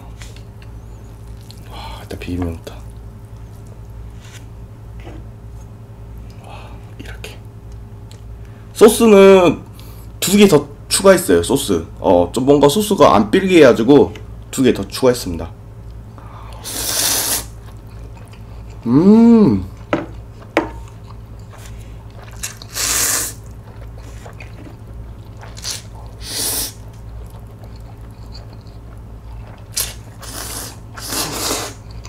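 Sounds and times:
man slurping noodles: 16.6 - 17.5, 22.3 - 24.4, 25.4 - 26.8, 29.8 - 31.8
faint chewing clicks: 17.6 - 18.9, 26.8 - 30.4
man humming: 18.8 - 19.8.

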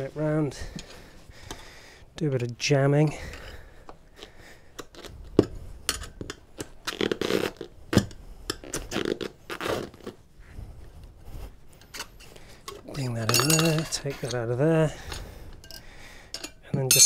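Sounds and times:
rubber scraping: 6.7 - 10.5.

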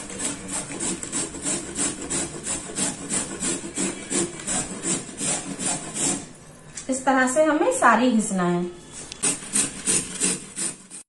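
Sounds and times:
carrot grated on metal grater: 0.0 - 6.3, 9.2 - 11.0.

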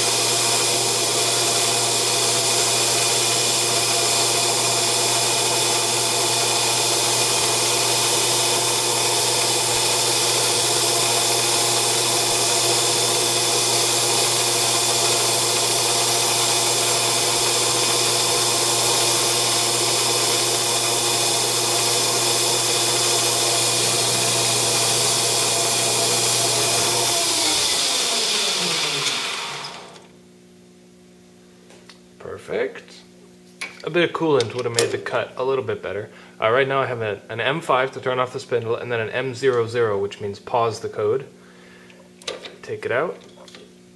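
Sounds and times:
lathe cutting metal with whine: 0.0 - 30.0
lathe spindle winding down: 0.0 - 30.1.

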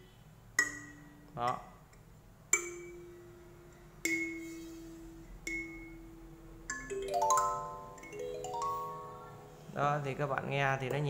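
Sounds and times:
kalimba notes plucked: 5.4 - 9.6.

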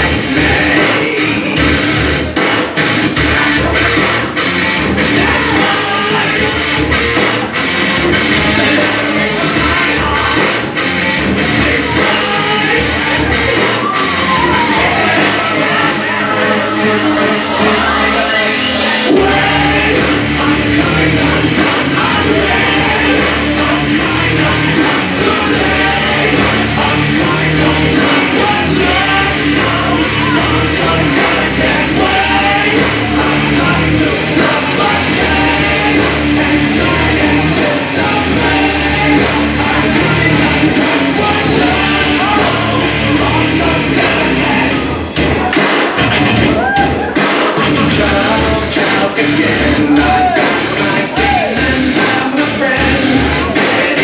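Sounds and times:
song over sound system: 0.0 - 54.0.

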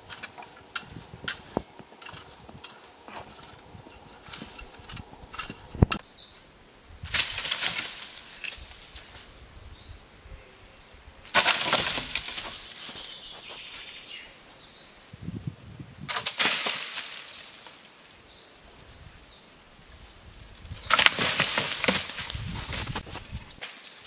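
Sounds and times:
dry leaves rustling and crackling: 6.3 - 9.4, 11.3 - 14.2, 16.1 - 24.0.

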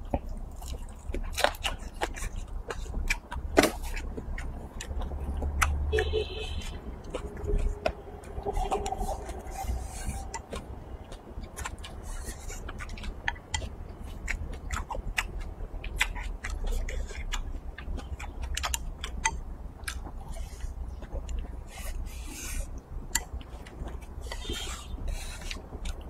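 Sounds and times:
chewing with wet mouth clicks: 0.0 - 26.0
low hum: 4.5 - 14.0.

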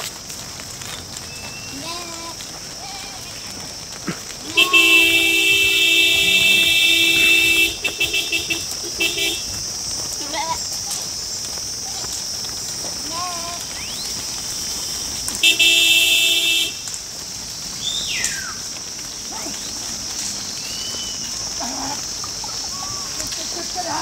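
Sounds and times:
steady high hiss: 0.0 - 24.0
vehicle horn honking: 4.5 - 9.4, 15.4 - 16.8.

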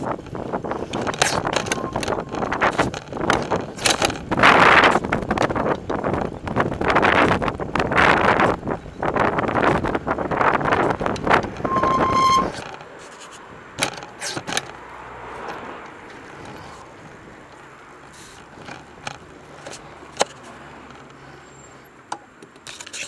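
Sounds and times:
bicycle clicks and rattles: 0.0 - 11.7, 12.4 - 23.0
wind buffeting microphone: 0.0 - 12.6
short steady beep: 11.7 - 12.5.

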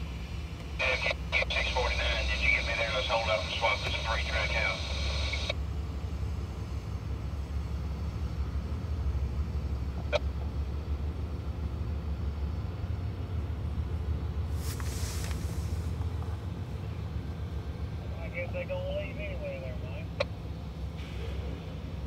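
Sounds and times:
diesel locomotive engine rumble: 0.0 - 22.0
short hiss: 14.5 - 15.9.

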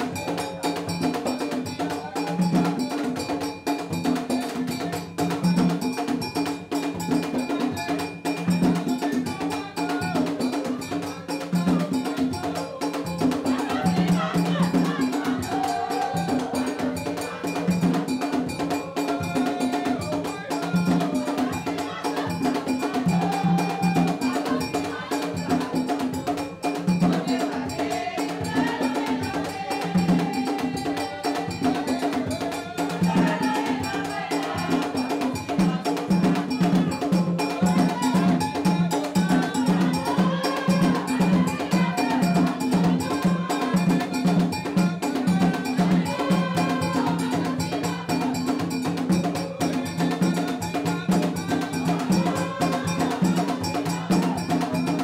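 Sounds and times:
drums: 0.0 - 55.0
singing: 0.0 - 55.0.

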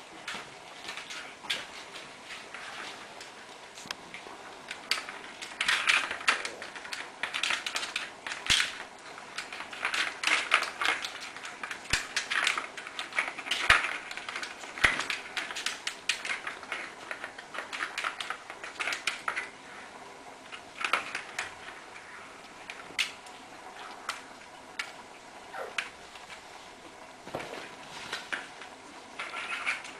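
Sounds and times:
ball rattling in plastic cat toy: 4.7 - 19.6, 28.1 - 29.9.

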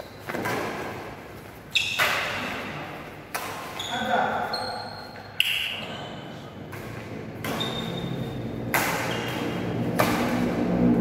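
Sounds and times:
racket hitting shuttlecock: 0.2 - 1.1, 1.8 - 4.1, 6.7 - 10.9.

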